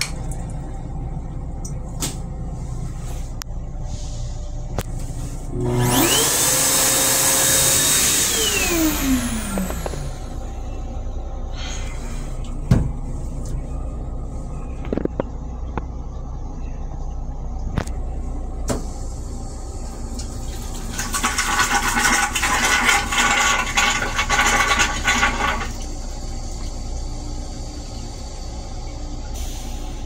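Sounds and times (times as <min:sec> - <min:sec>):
steady low rumble: 0:00.0 - 0:06.1, 0:08.4 - 0:21.4, 0:25.7 - 0:30.0
toilet flushing hiss: 0:05.7 - 0:10.6, 0:18.7 - 0:30.0.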